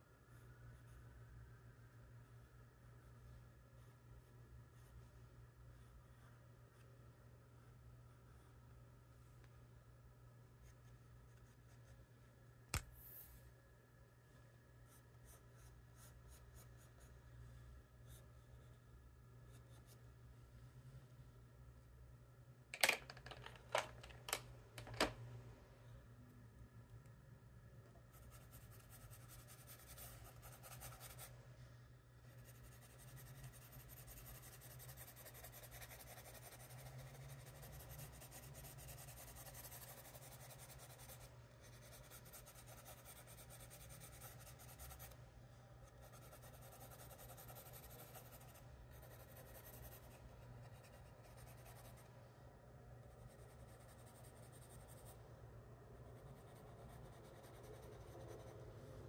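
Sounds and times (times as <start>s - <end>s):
steady low hum: 23.6s - 59.0s
charcoal pencil scratching paper: 28.1s - 31.3s, 32.2s - 45.2s, 45.8s - 52.1s, 53.0s - 55.2s, 56.0s - 58.6s.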